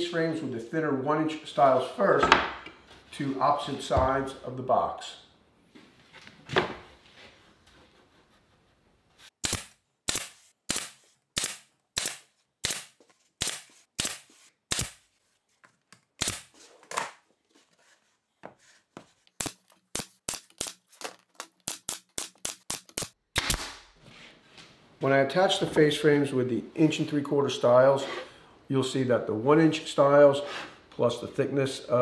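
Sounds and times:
pneumatic nailer firing: 0:09.4 - 0:15.0, 0:22.6 - 0:23.9.

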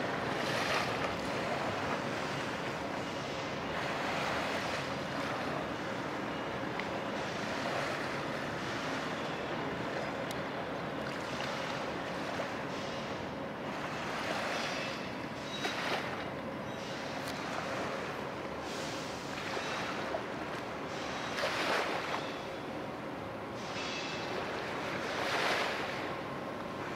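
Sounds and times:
water lapping: 0:00.0 - 0:26.9.

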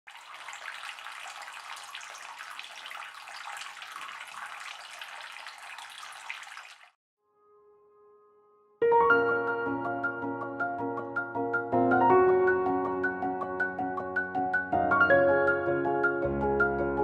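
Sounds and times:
fountain water trickling and splashing: 0:00.1 - 0:07.0.

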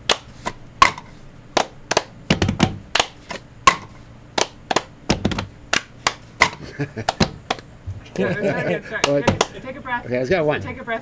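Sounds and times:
hands thumping on bench: 0:00.8 - 0:08.0
people clapping: 0:05.7 - 0:07.6, 0:08.9 - 0:09.6.

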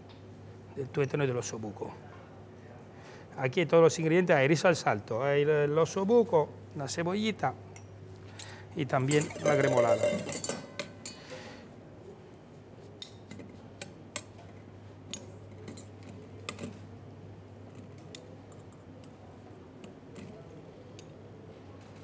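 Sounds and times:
utensils clinking on plates: 0:07.8 - 0:11.6.

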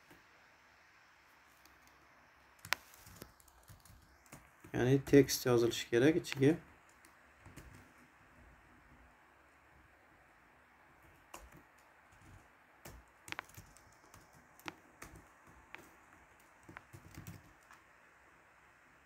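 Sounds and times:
low steady hiss: 0:00.0 - 0:19.0
keyboard keystrokes clicking: 0:11.0 - 0:17.8.

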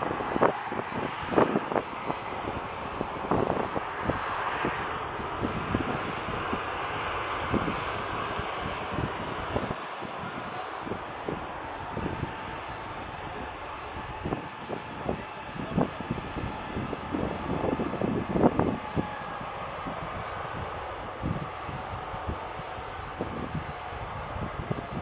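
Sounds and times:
jet engine roar: 0:00.0 - 0:25.0.

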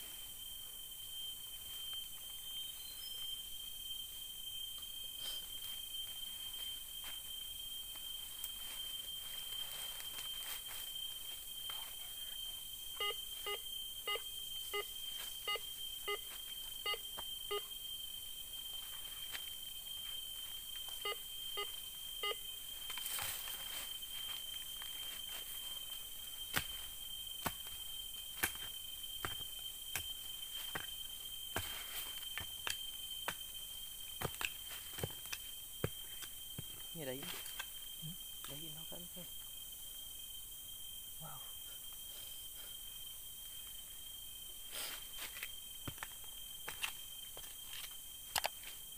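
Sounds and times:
metal detector beeping: 0:13.0 - 0:17.7, 0:21.0 - 0:22.4.

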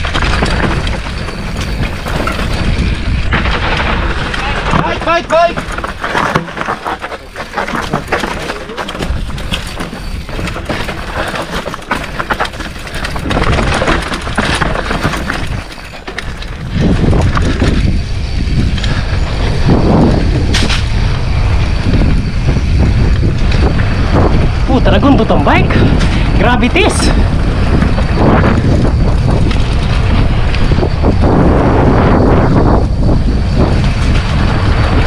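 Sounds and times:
tyres crunching over leaves and rocks: 0:00.0 - 0:19.8
bike clattering and rattling: 0:00.0 - 0:35.0
wind rumble on microphone: 0:00.0 - 0:35.0.

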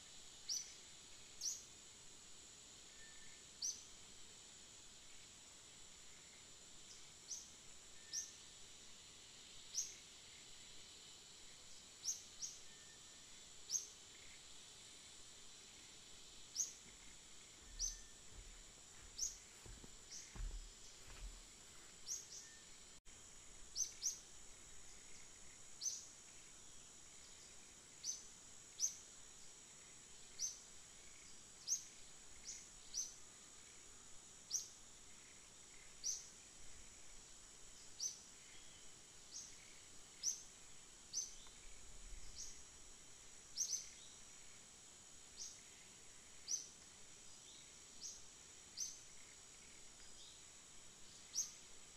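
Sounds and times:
high-pitched insect whine: 0:00.0 - 0:51.9
soft low bumps: 0:16.9 - 0:21.4.

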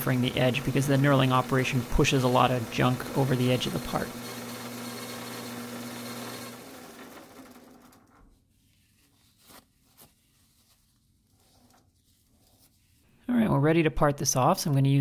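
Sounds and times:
metal lathe humming: 0:00.0 - 0:07.9.

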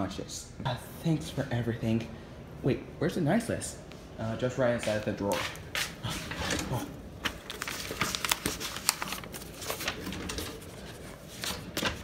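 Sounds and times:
rustling of plush toys: 0:05.0 - 0:12.0.

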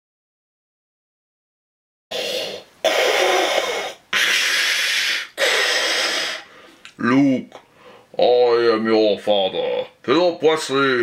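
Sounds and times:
man making hissing respirator breaths: 0:02.1 - 0:06.9, 0:07.6 - 0:08.2.

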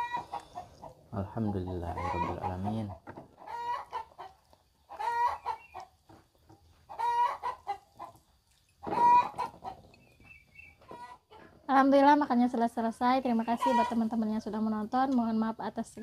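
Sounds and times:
chicken calling: 0:00.0 - 0:06.0, 0:06.9 - 0:08.2, 0:08.8 - 0:11.5, 0:13.3 - 0:14.2.

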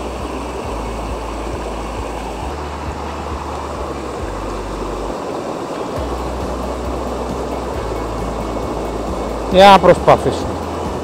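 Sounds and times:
low rumble: 0:00.0 - 0:05.3
stream rushing over rocks: 0:00.0 - 0:11.0.

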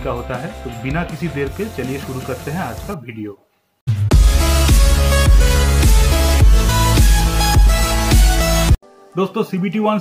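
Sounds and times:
electronic music with heavy bass: 0:03.9 - 0:08.8.

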